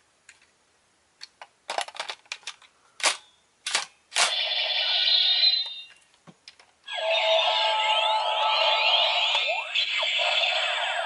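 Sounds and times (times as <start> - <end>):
electronic toy sound effect: 4.3 - 6.0, 6.9 - 11.0.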